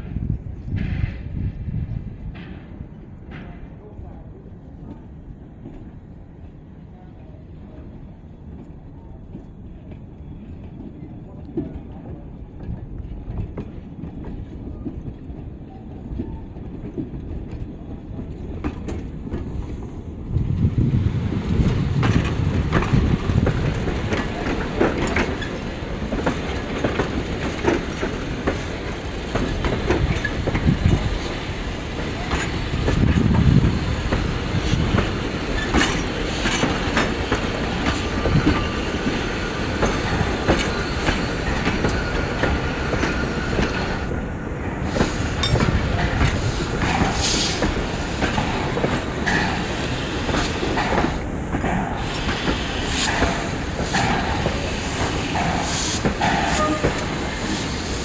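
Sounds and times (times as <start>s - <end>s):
train wheels rumbling: 0.0s - 58.0s
wheels clacking over rail joints: 21.5s - 44.1s, 44.9s - 57.8s.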